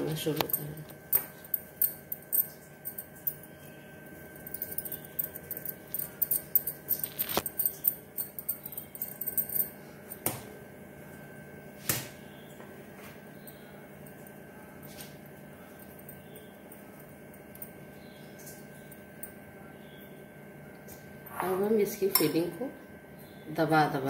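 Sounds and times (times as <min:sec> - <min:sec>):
light clicking and tinkling: 0:00.2 - 0:10.2.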